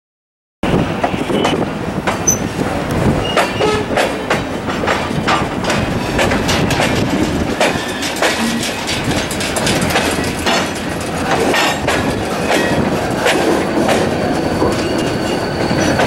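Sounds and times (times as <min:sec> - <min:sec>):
train wheels clacking over rail joints: 0:00.9 - 0:16.0
wheel squeals: 0:02.2 - 0:02.6, 0:03.2 - 0:03.9, 0:13.6 - 0:16.0
metallic clanks: 0:03.4 - 0:12.7.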